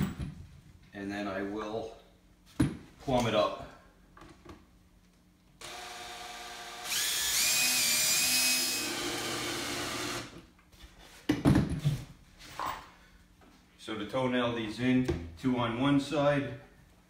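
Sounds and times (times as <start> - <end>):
cordless drill driving screw into wood: 5.6 - 10.4.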